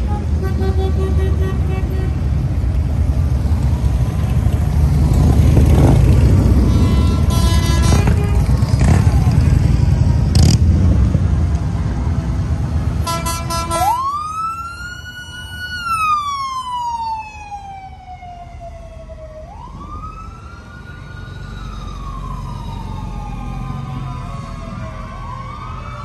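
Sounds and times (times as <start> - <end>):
pulsing horn blast: 0.0 - 2.4, 6.4 - 9.0, 13.0 - 14.0
vehicle engine rumble: 0.0 - 26.0
emergency vehicle siren: 3.2 - 26.0.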